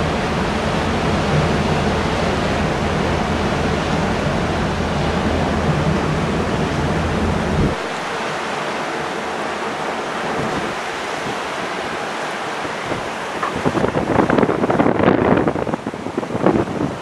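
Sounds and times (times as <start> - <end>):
deep rumble: 0.0 - 7.9
wind and water rushing: 0.0 - 17.0.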